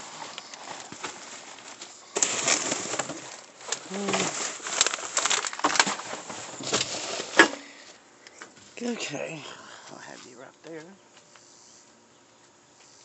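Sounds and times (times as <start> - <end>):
plastic bags crinkling: 0.0 - 8.0.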